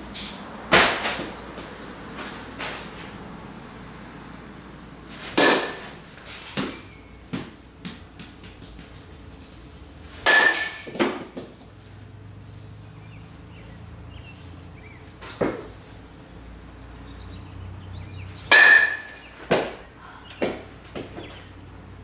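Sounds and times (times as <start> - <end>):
metal bat hitting baseball: 0.7 - 1.4, 5.2 - 8.3, 10.2 - 11.5, 18.5 - 19.8.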